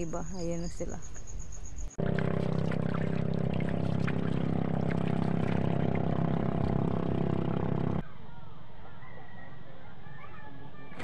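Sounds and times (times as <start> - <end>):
motor hum: 2.0 - 8.0
water splashing from paddle: 2.0 - 8.0.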